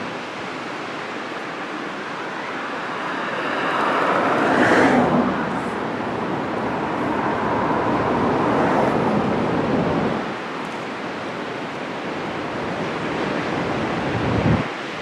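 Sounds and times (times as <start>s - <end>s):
wind on microphone: 0.0s - 10.5s, 13.3s - 14.8s
ocean surf breaking: 0.0s - 15.0s.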